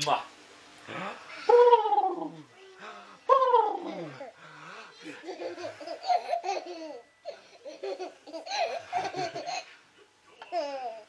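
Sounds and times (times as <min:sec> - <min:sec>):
baby laughing: 0:05.0 - 0:09.8.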